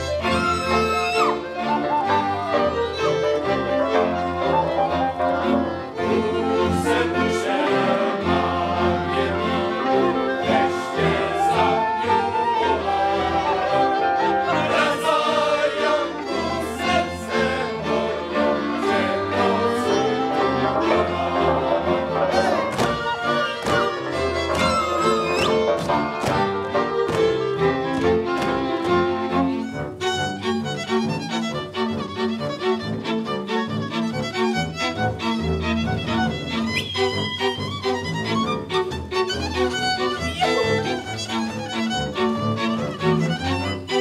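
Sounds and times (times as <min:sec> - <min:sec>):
fiddle-led string band: 0:00.0 - 0:44.0
voices singing along: 0:06.0 - 0:25.5.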